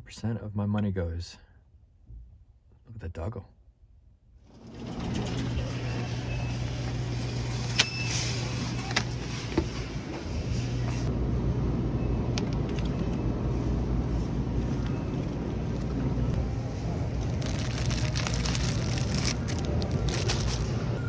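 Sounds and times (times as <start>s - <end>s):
steady low hum: 8.4s - 21.0s
crinkling plastic bag: 17.1s - 20.8s.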